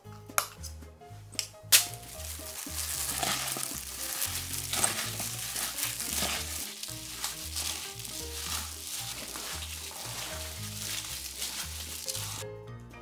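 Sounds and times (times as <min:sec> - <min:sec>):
hand mixing meat in marinade: 0:01.7 - 0:12.5
spoon scraping glass bowl: 0:03.1 - 0:12.4.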